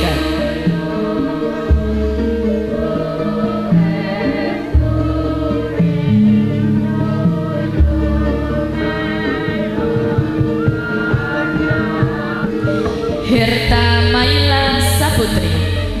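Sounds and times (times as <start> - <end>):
low bass note: 0.0 - 2.8, 13.3 - 16.0
choral singing over held chords: 0.0 - 16.0.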